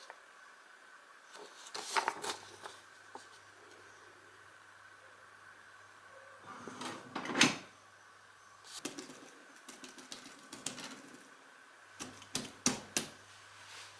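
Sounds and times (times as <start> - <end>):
paper rustling: 1.3 - 3.4.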